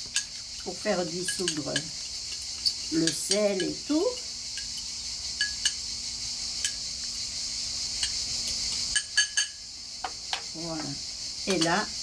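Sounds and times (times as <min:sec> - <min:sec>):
spoon clinking against glass bowl: 0:00.1 - 0:05.8, 0:08.0 - 0:09.6.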